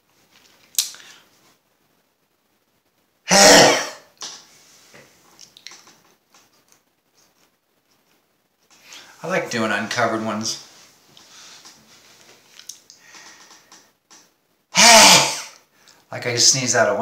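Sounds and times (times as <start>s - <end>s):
man sneezing: 3.3s - 4.2s, 14.7s - 15.6s.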